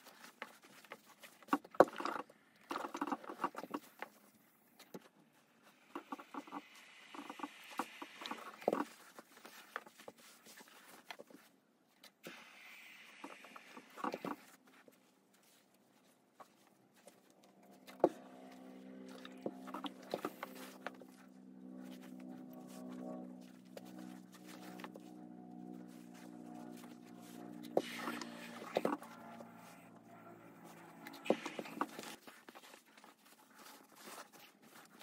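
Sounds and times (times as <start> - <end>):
cloth rustling: 13.9 - 35.0.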